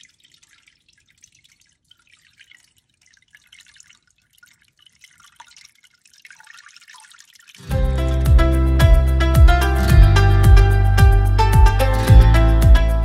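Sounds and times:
water falling over pebbles: 0:00.0 - 0:07.8
water splashing and dripping: 0:00.0 - 0:12.9.

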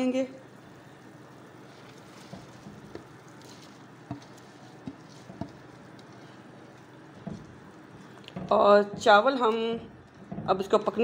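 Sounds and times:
faint bubbling hiss of boiling stock: 0:00.0 - 0:11.0
colander knocking against pot: 0:08.3 - 0:11.0.

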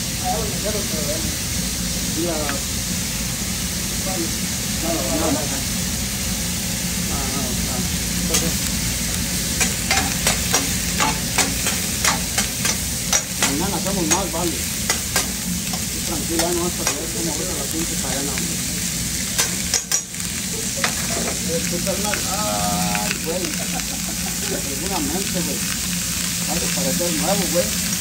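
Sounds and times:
steak sizzling on griddle: 0:00.0 - 0:28.0
spatulas clacking on griddle: 0:09.5 - 0:17.2, 0:19.3 - 0:20.2, 0:20.8 - 0:21.5.

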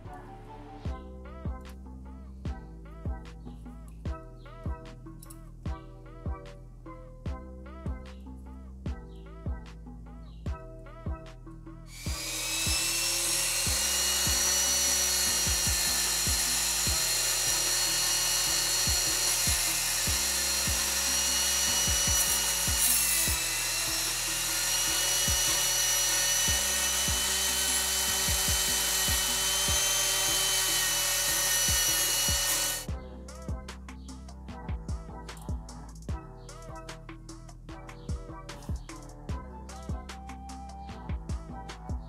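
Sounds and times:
rotary tool grinding metal: 0:11.9 - 0:32.9.

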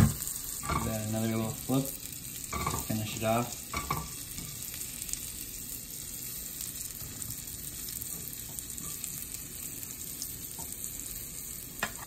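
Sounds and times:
mushrooms sizzling in butter: 0:00.0 - 0:12.0.

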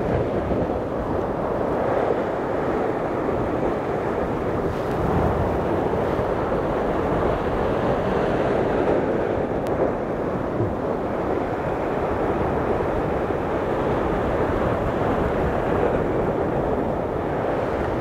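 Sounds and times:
surf breaking on rocky shore: 0:00.0 - 0:18.0
wind buffeting microphone: 0:00.0 - 0:18.0.

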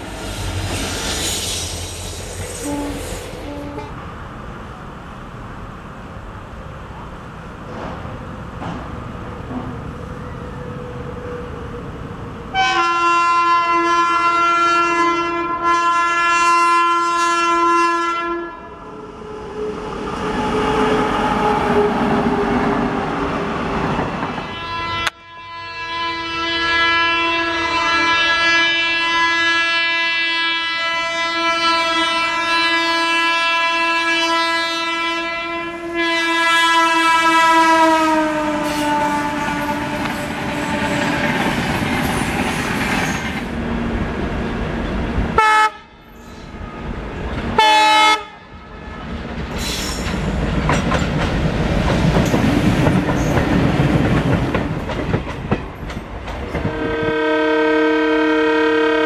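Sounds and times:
train coaches clattering past: 0:00.0 - 0:04.3, 0:07.0 - 0:12.7, 0:18.8 - 0:25.1, 0:37.0 - 0:45.4, 0:49.0 - 0:57.4
locomotive horn blast: 0:02.6 - 0:04.0, 0:12.5 - 0:18.8, 0:24.4 - 0:41.2, 0:45.4 - 0:46.0, 0:47.6 - 0:49.1, 0:56.6 - 0:59.0.

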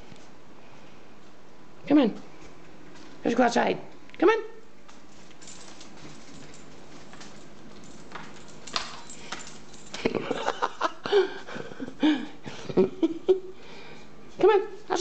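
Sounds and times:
dog boots clicking on tile floor: 0:04.9 - 0:10.1
person laughing: 0:10.0 - 0:13.6.

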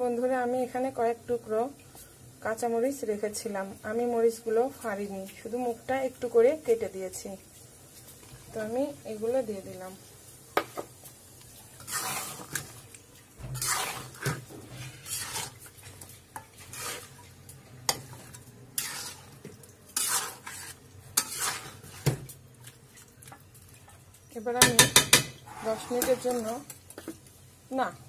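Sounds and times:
metal spatula scraping a pan: 0:11.6 - 0:12.8, 0:13.4 - 0:22.2, 0:24.6 - 0:27.1.

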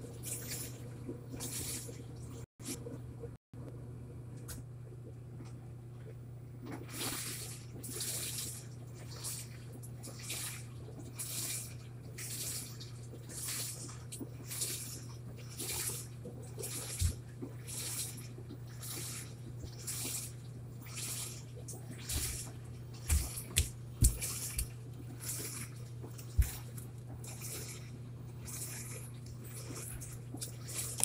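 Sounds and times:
tumble dryer motor hum: 0:21.8 - 0:31.0.

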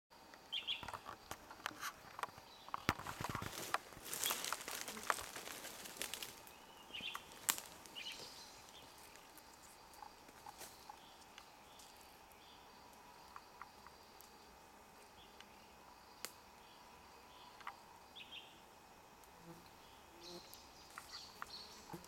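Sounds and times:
small ticks: 0:00.3 - 0:14.4, 0:17.5 - 0:17.8, 0:19.2 - 0:22.0
leaf litter crackling: 0:03.0 - 0:09.5.

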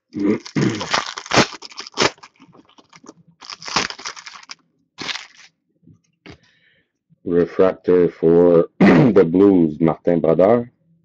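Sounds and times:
foil wrapper crinkling: 0:00.2 - 0:05.5.

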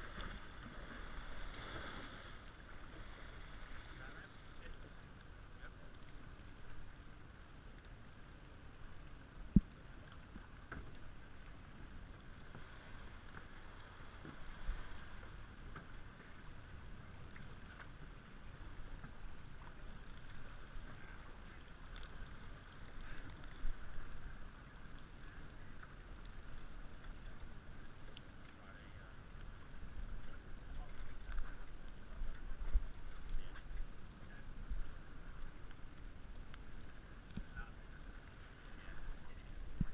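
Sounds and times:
water wash: 0:00.0 - 0:07.0.

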